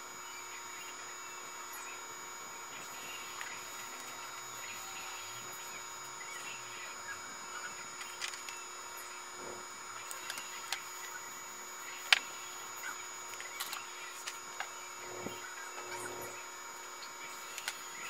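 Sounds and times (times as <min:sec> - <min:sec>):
electrical hum and whine: 0:00.0 - 0:18.0
faint clicks of handled parts: 0:08.0 - 0:08.6, 0:13.3 - 0:14.7, 0:17.5 - 0:17.8.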